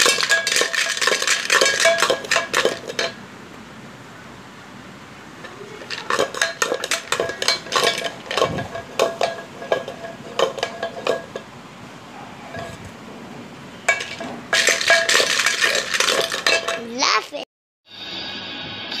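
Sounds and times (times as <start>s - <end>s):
plastic blocks clattering in metal pot: 0.0s - 3.2s, 5.4s - 11.4s, 13.9s - 16.9s.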